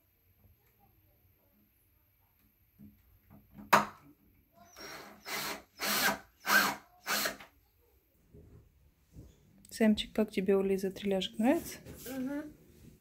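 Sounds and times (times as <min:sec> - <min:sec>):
power screwdriver bursts: 0:04.7 - 0:07.4.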